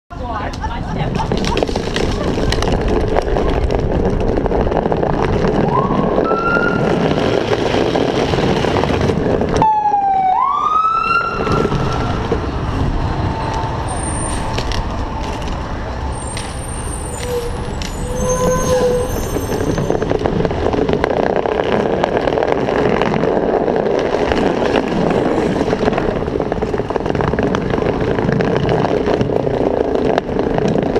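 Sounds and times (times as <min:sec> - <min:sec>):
wind and bike rolling on bricks: 0:00.1 - 0:30.9
fire truck siren: 0:05.6 - 0:07.2, 0:09.6 - 0:19.9
short high squeaks: 0:16.1 - 0:20.1.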